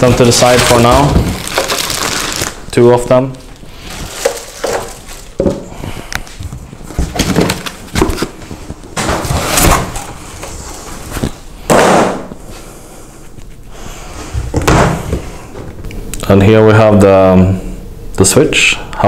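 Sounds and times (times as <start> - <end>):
foam and cardboard rustling: 0.0 - 2.6, 3.6 - 5.7, 6.4 - 11.4.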